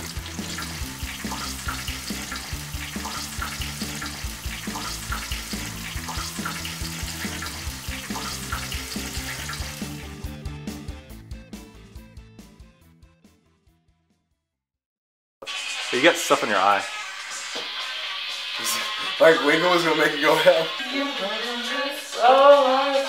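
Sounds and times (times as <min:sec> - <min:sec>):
tofu sizzling in hot oil: 0:00.0 - 0:10.2, 0:15.4 - 0:20.9
background music: 0:00.0 - 0:14.0, 0:16.2 - 0:23.0.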